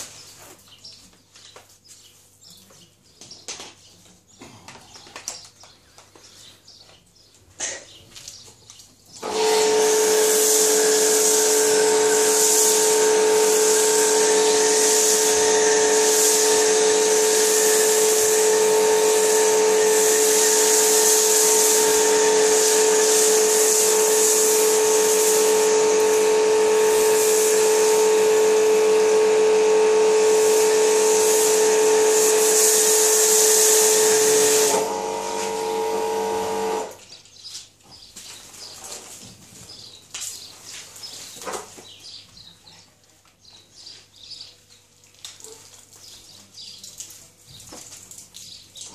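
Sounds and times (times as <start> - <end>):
foam lance spray hissing: 9.2 - 36.9
pressure washer motor humming: 9.2 - 37.0.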